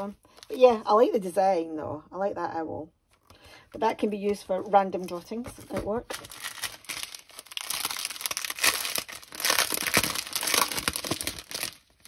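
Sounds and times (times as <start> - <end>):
plastic packaging crinkling: 5.6 - 12.0.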